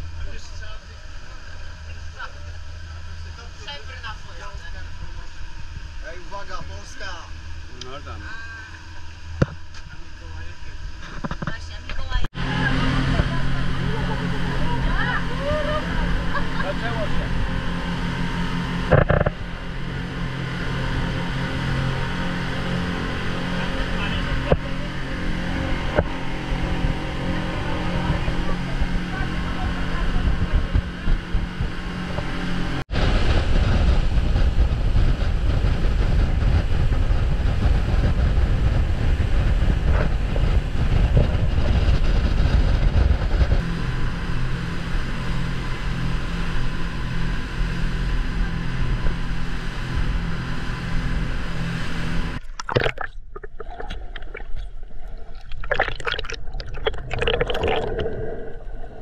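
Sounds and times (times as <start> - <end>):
speedboat engine and water rush: 0.0 - 59.0
underwater sloshing and bubbling: 51.4 - 59.0.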